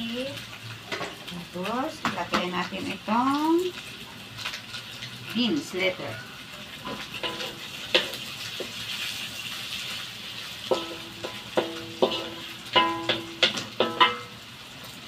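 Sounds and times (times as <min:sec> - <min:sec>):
food sizzling in wok: 0:00.0 - 0:15.0
spatula knocking ringing wok: 0:06.2 - 0:08.8, 0:10.6 - 0:14.4.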